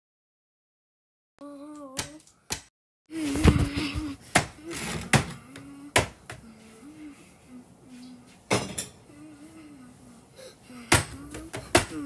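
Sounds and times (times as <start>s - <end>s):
person humming: 1.4s - 2.4s, 3.1s - 8.4s, 9.0s - 12.0s.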